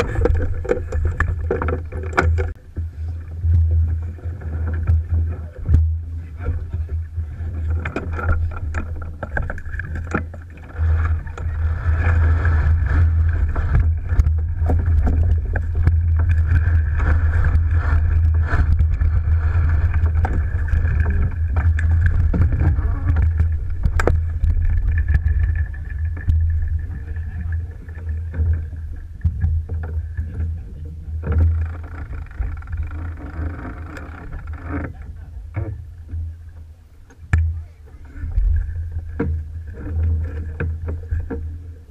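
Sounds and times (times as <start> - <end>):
water rushing along hull: 0.0 - 41.9
wind rumbling on microphone: 0.0 - 41.9
scattered knocks: 7.7 - 27.0.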